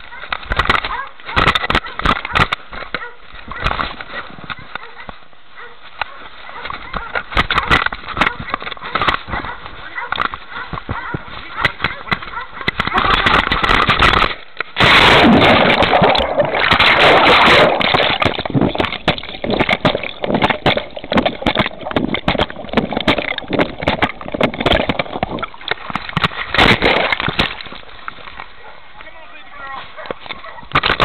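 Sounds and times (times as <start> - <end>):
water sloshing and splashing: 6.3 - 28.9
dog splashing into water: 12.6 - 27.8.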